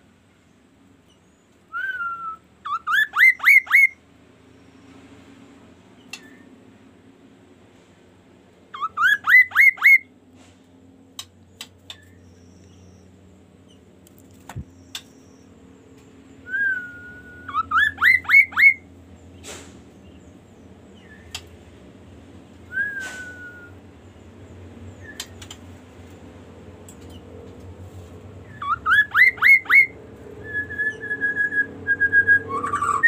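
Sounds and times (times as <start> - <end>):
bird whistling rising notes: 1.7 - 4.0, 8.8 - 10.1, 16.4 - 18.8, 22.7 - 23.9, 28.4 - 33.0.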